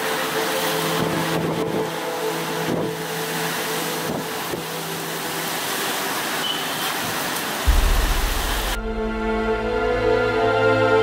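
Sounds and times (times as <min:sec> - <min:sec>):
driving rain: 0:00.0 - 0:11.0
hurricane wind: 0:00.0 - 0:11.0
deep bass note: 0:07.7 - 0:10.6.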